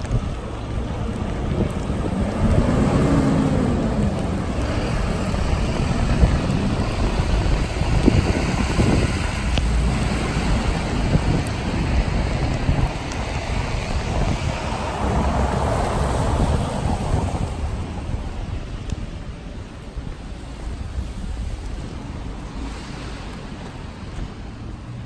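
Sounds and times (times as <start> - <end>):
rain hiss: 0.0 - 25.0
traffic on wet street: 0.0 - 25.0
wind rumbling on microphone: 0.0 - 25.0
vehicle engine passing: 1.1 - 11.0.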